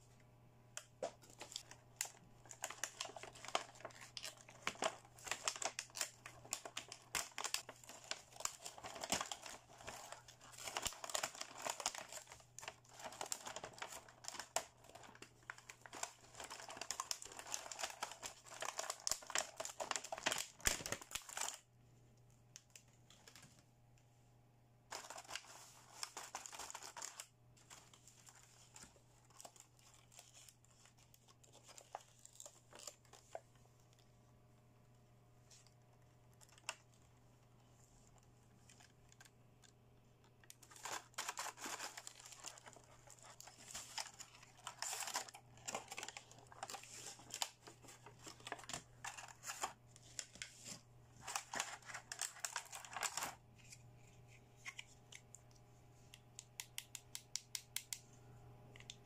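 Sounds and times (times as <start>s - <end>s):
plastic wrapping crinkling: 0.8s - 21.7s, 24.9s - 34.1s, 38.0s - 55.2s.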